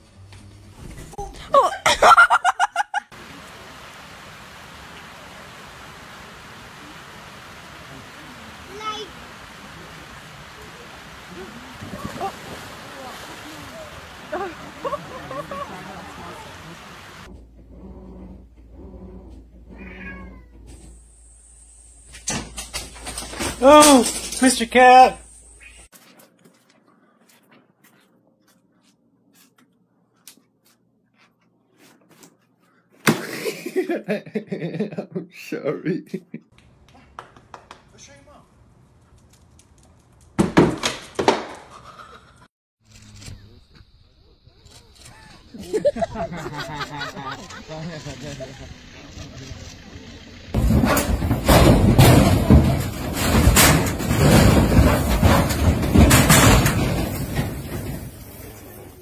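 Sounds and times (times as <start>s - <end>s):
dog scrambling in laundry basket: 50.6s - 58.2s
plastic basket clattering over: 50.6s - 58.2s
hooves knocking on metal: 50.6s - 58.5s.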